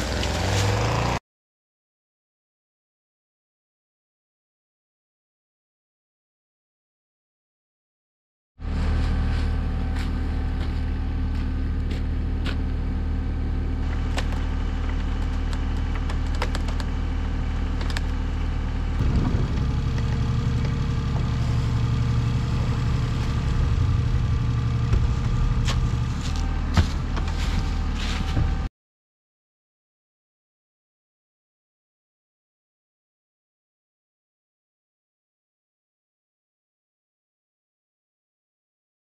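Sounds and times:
excavator diesel engine running: 8.6 - 28.7.

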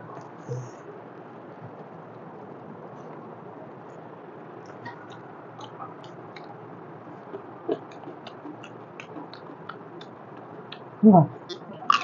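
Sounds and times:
low room noise: 0.0 - 12.0
chewing with wet mouth clicks: 4.6 - 6.6, 7.2 - 12.0.

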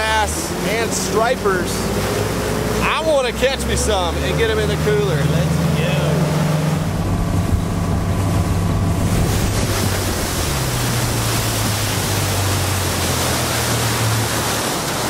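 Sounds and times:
outboard motor running: 0.0 - 15.0
rush of wake water: 0.0 - 15.0
wind on microphone: 6.3 - 15.0.

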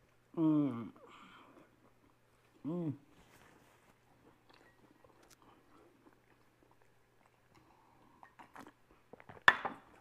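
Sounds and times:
chewing bread: 3.8 - 10.0.

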